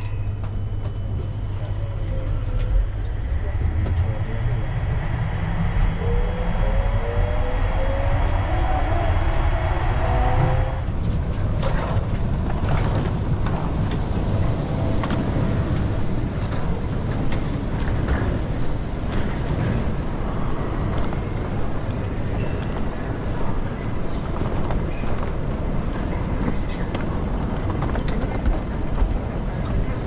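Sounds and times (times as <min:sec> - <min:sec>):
low rumble: 0:00.0 - 0:21.8
electric train whine: 0:00.0 - 0:30.0.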